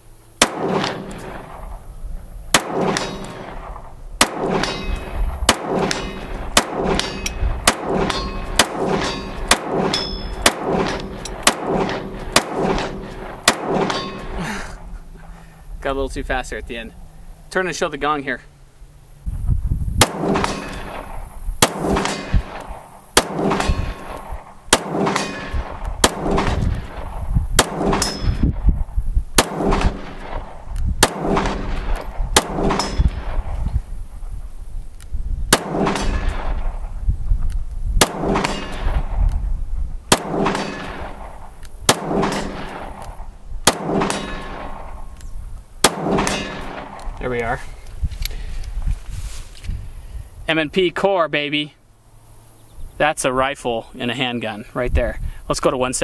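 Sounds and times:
pistol shots: 0.4s - 1.8s, 2.5s - 14.4s, 20.0s - 33.6s, 35.5s - 36.9s, 38.0s - 39.3s, 40.1s - 45.2s, 45.8s - 47.4s.

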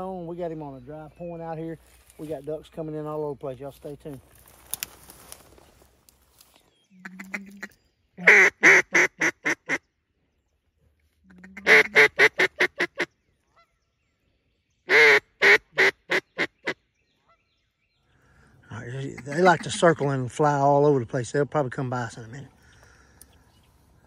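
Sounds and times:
duck call quacks: 7.0s - 9.8s, 11.4s - 13.1s, 14.9s - 16.8s.

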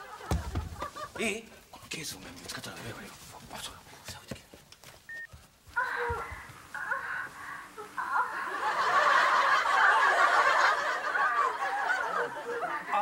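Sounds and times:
audience laughter: 0.0s - 1.3s, 7.8s - 13.0s.

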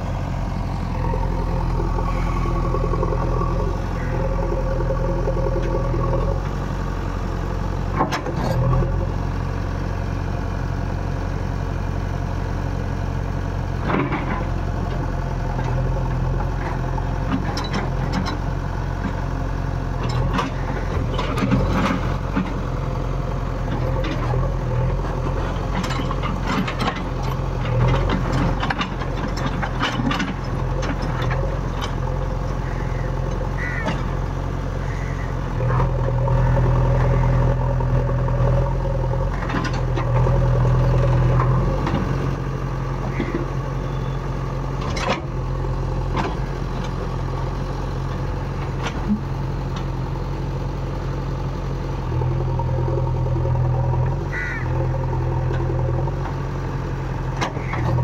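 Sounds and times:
diesel engine running: 0.0s - 58.0s
machinery knocks and clatter: 25.1s - 32.0s.

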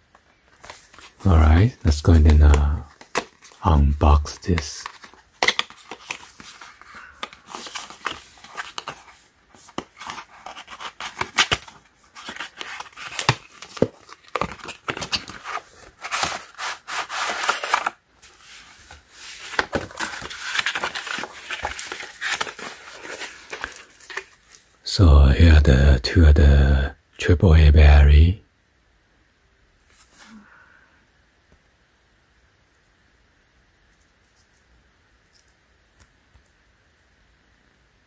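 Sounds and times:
plastic wrapping crinkling: 0.5s - 24.7s
cardboard box being opened: 4.8s - 24.3s.

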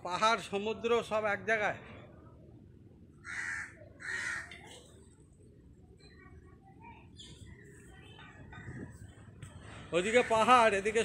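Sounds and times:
crow cawing: 3.2s - 4.6s.

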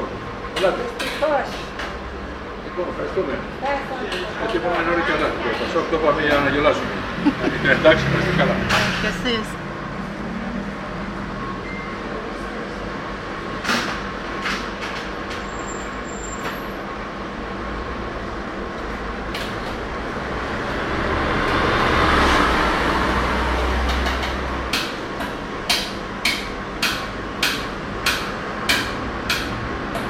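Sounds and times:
vehicle passing by: 6.6s - 11.4s, 20.0s - 24.7s.

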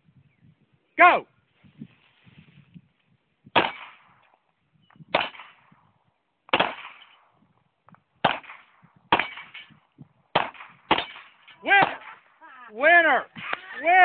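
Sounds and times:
handgun shots with echo: 3.6s - 4.1s, 5.1s - 5.6s, 6.5s - 7.2s, 8.2s - 12.2s.

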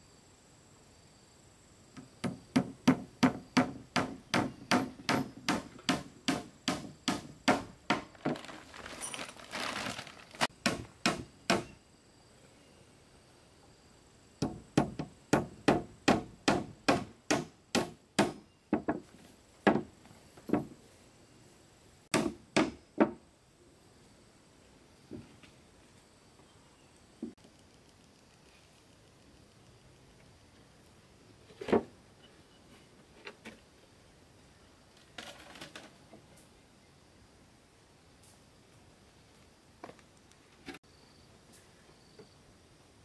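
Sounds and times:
scraping rustle: 8.0s - 10.5s.

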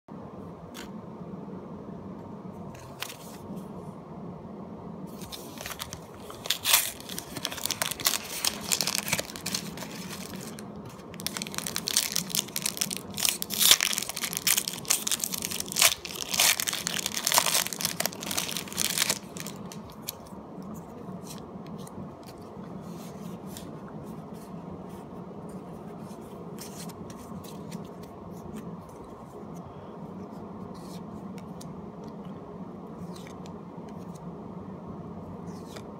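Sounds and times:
trading cards being shuffled: 5.1s - 20.2s
foil wrapper crinkling and tearing: 5.2s - 20.2s.

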